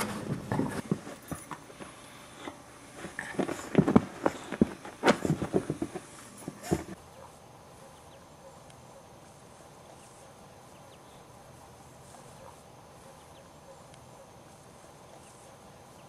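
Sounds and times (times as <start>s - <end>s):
puppies bumping the microphone: 0.0s - 1.9s, 3.0s - 7.0s.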